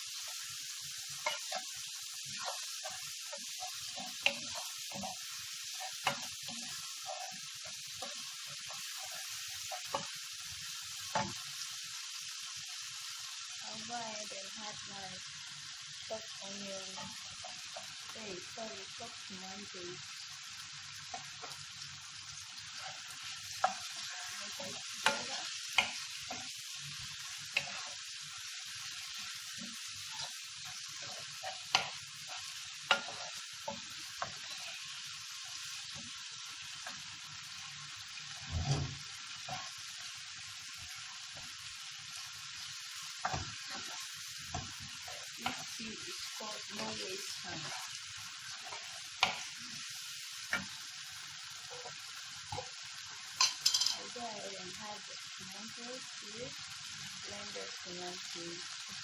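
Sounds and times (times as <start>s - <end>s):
spatula stirring: 0.0s - 11.7s, 22.4s - 39.9s, 40.6s - 52.8s
vegetables sizzling in a frying pan: 0.0s - 59.0s.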